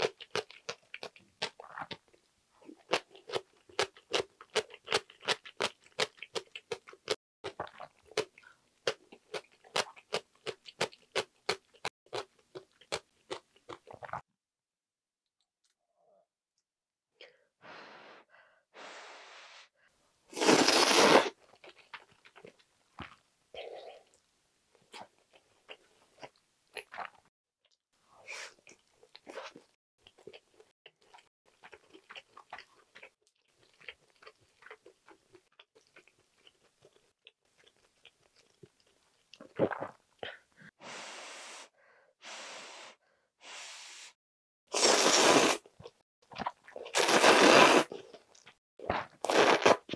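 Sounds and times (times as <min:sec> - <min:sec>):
noodles slurped loudly: 0:20.4 - 0:21.4, 0:44.7 - 0:45.7, 0:46.4 - 0:48.0, 0:48.9 - 0:49.9.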